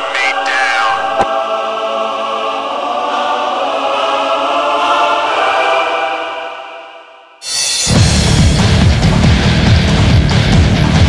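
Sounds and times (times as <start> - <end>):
sustained choir-like chord: 0.0 - 8.2.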